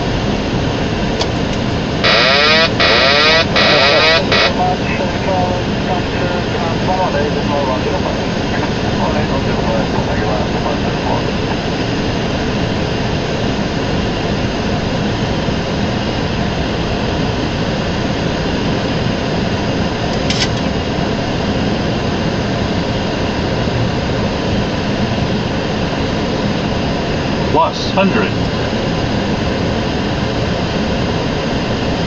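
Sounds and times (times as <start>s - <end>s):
jet engine and airflow rush: 0.0s - 32.0s.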